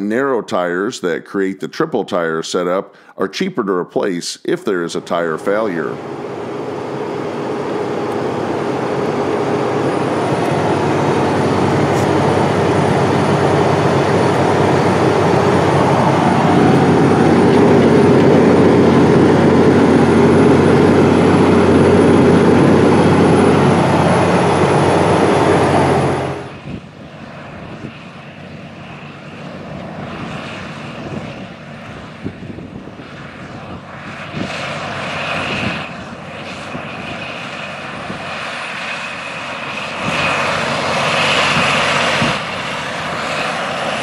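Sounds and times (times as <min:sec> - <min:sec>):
distant tractors working: 0:04.8 - 0:44.0
tractor diesel engine droning: 0:04.9 - 0:32.0.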